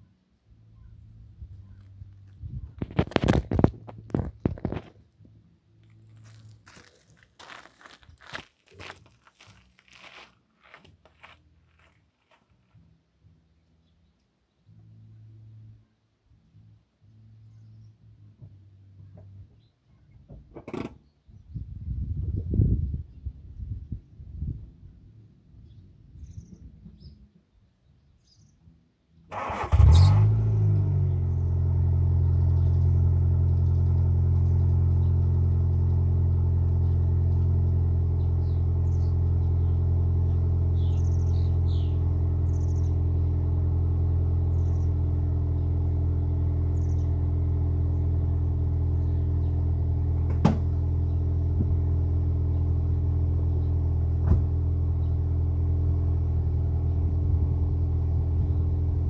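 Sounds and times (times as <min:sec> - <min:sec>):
car engine starting and idling: 0:29.2 - 0:59.0.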